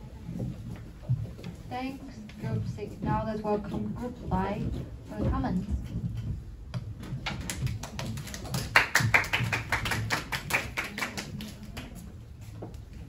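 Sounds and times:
people applauding: 0:07.4 - 0:12.0.

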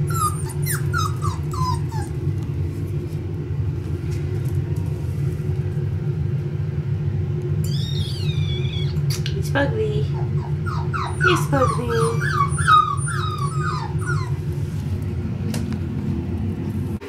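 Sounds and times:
puppy whimpering: 0:00.0 - 0:02.3, 0:07.6 - 0:09.3, 0:10.0 - 0:14.5
steady low rumble: 0:00.0 - 0:17.0.

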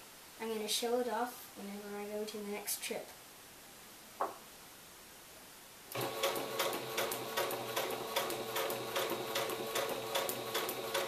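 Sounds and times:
sewing machine motor hum: 0:05.9 - 0:11.0
sewing needle mechanism clicking: 0:05.9 - 0:11.0.

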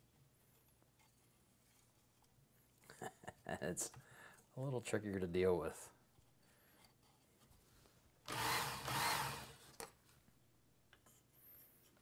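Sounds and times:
belt sharpener motor running: 0:08.3 - 0:09.6.

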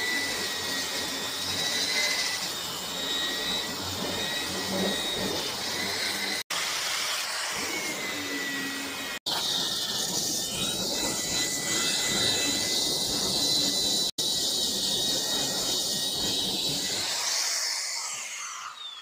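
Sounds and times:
sander motor whine: 0:00.0 - 0:19.0
disc grinding paint off metal: 0:07.5 - 0:18.6.

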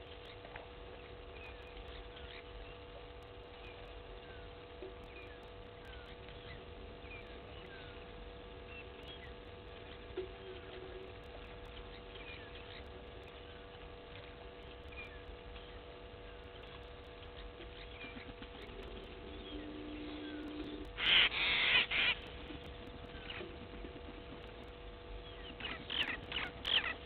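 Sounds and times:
steady hum: 0:00.0 - 0:27.0
faint bird chirps: 0:03.5 - 0:22.2
loud harsh bird call: 0:19.2 - 0:22.3.

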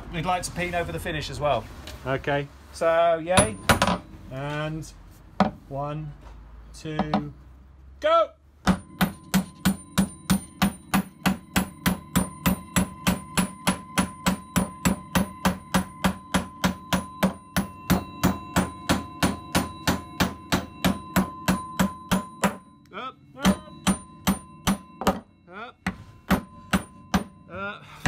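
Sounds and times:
hammer striking steel rivet: 0:03.4 - 0:04.1, 0:08.6 - 0:22.8, 0:23.4 - 0:27.4.

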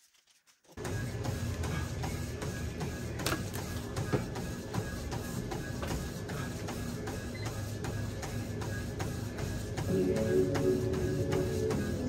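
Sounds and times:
low mechanical hum: 0:00.8 - 0:12.0
music with steady beat: 0:07.6 - 0:12.0.

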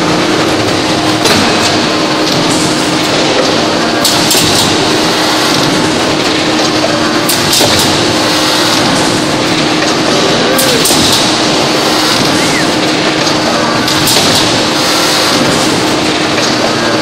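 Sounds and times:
machine noise with hum: 0:00.0 - 0:17.0.

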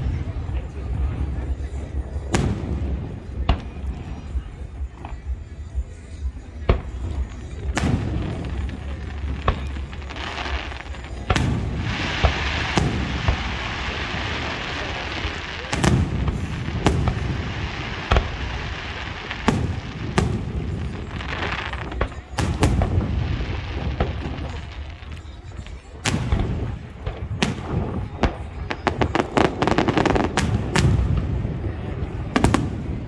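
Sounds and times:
fireworks bangs: 0:00.0 - 0:05.4, 0:06.6 - 0:33.0
fireworks crackling: 0:00.0 - 0:33.0.

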